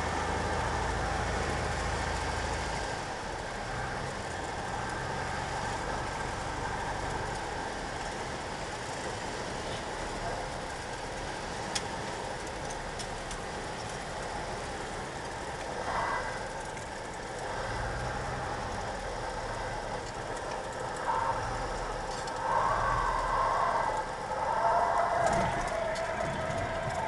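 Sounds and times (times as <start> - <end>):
airplane engine running: 18.1 - 27.0.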